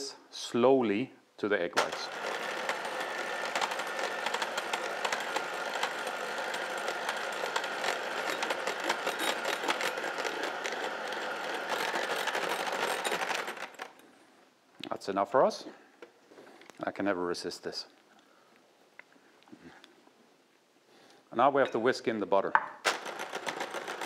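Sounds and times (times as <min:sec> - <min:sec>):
electric hand mixer running: 0:01.8 - 0:14.0, 0:23.0 - 0:24.0.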